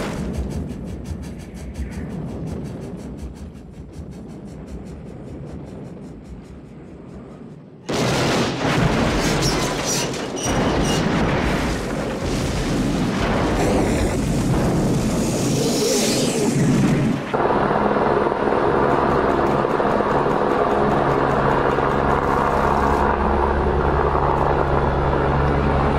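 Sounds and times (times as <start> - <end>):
long explosion: 7.9 - 17.2.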